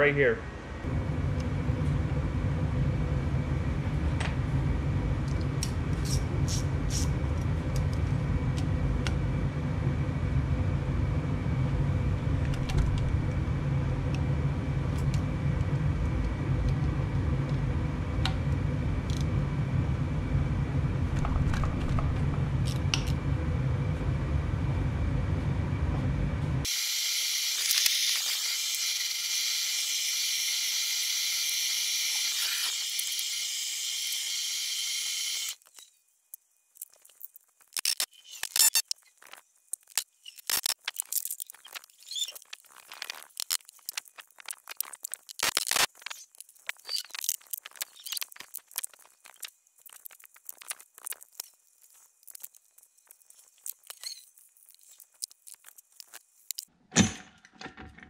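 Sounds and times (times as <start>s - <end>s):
low rumble: 7.2s - 26.6s.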